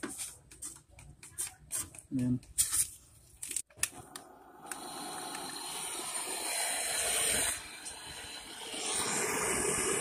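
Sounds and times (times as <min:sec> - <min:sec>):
torch flame hissing: 0:04.2 - 0:10.0.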